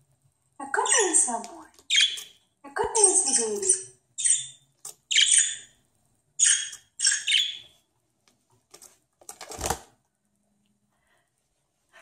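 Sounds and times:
budgerigar chirping: 1.9s - 2.4s, 3.0s - 5.8s, 6.4s - 7.8s.

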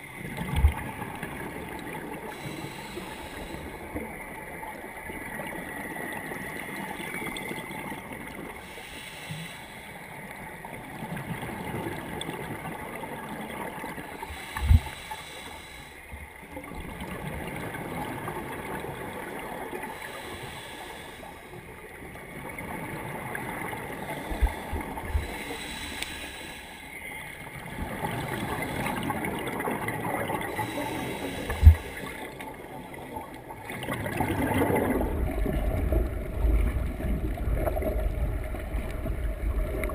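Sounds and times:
muffled underwater rushing: 0.0s - 39.9s.

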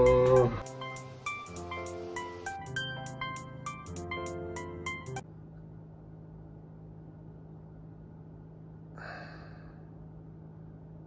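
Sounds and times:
faint low hum: 5.2s - 11.0s
person breathing out: 9.0s - 9.9s.

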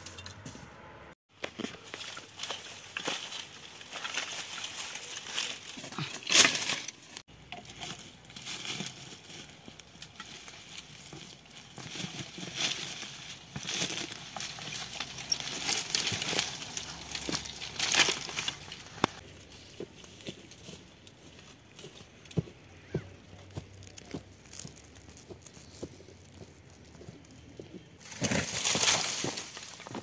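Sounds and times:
dry sticks crackling and rustling: 1.3s - 30.0s
sticks snapping: 13.7s - 19.2s.

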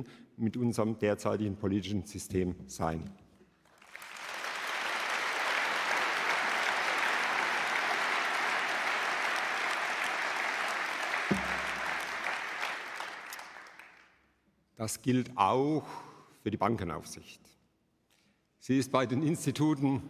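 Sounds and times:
audience applauding: 3.7s - 14.1s
low knock: 11.3s - 11.8s.

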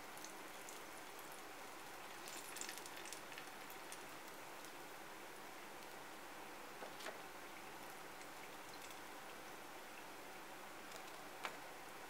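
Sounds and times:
hot oil crackling and sizzling: 0.0s - 6.0s.

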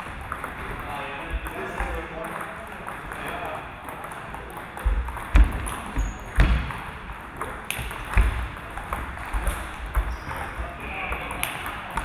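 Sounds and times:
table tennis ball clicking: 2.2s - 6.4s.

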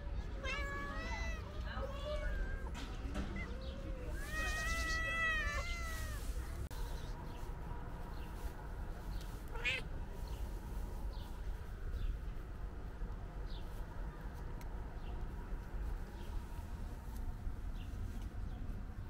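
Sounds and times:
cat meowing: 0.4s - 6.4s, 9.5s - 9.9s.

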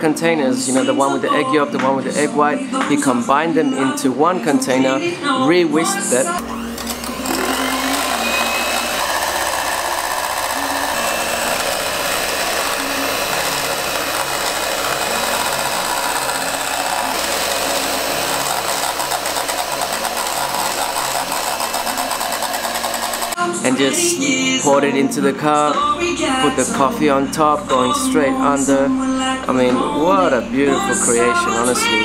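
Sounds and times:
electric whisk running: 6.4s - 23.4s.

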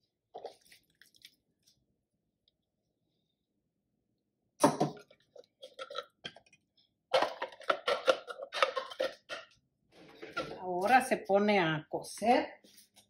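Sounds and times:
spatula scraping plastic bowl: 7.2s - 11.1s.

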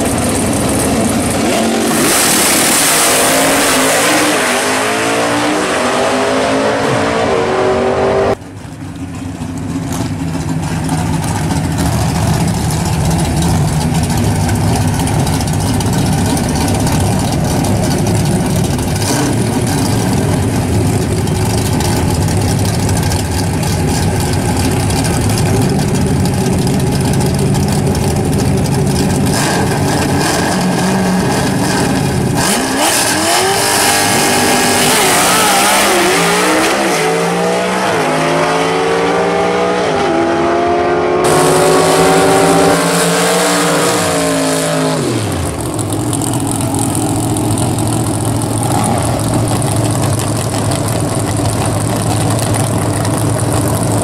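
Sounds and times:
race car engines idling: 0.0s - 2.0s, 8.3s - 32.4s, 41.2s - 54.0s
race car accelerating away: 0.1s - 8.5s, 9.9s - 54.0s.

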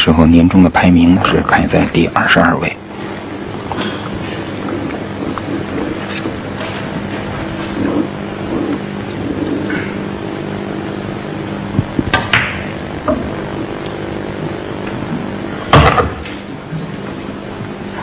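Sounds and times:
low hum: 0.0s - 18.0s
cue striking ball: 12.0s - 13.3s.

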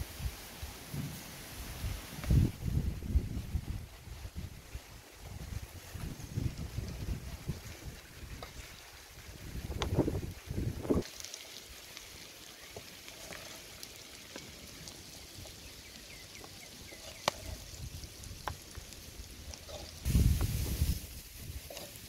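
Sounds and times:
wind buffeting microphone: 1.8s - 8.6s, 9.2s - 11.0s, 20.0s - 21.7s
hot oil crackling: 2.2s - 22.0s
wooden spatula scraping metal wok: 19.5s - 22.0s.

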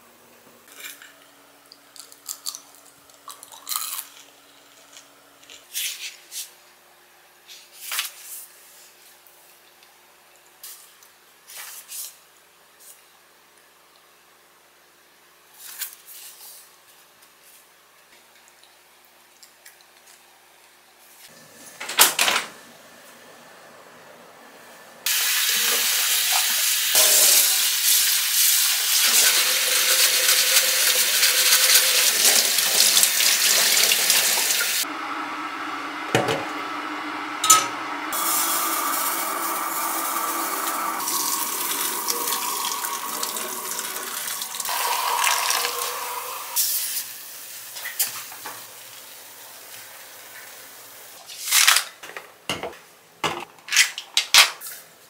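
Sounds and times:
dishes being rinsed: 25.1s - 34.8s, 37.4s - 46.6s
water running into glass bowl: 37.4s - 46.6s.

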